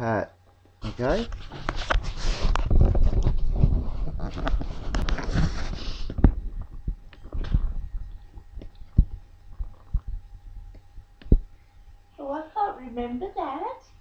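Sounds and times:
webcam handling rumble: 0:01.3 - 0:11.5
low thumps and knocks: 0:02.6 - 0:11.5.

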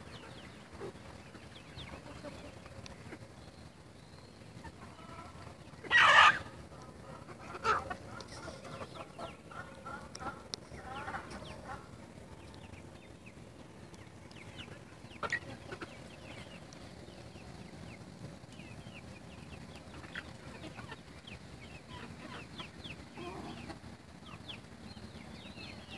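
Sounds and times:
chickens clucking: 0:00.0 - 0:25.9.

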